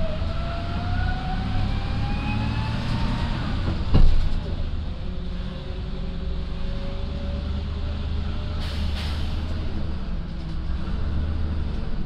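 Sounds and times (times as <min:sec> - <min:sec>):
bus engine drone: 0:00.0 - 0:12.0.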